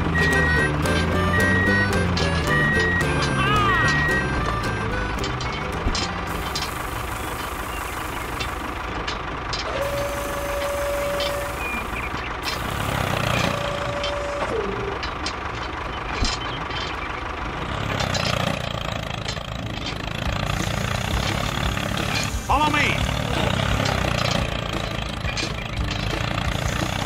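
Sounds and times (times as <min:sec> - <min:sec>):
held tone: 0:00.0 - 0:05.7, 0:09.7 - 0:12.1, 0:13.3 - 0:15.1
truck engine: 0:00.0 - 0:27.0.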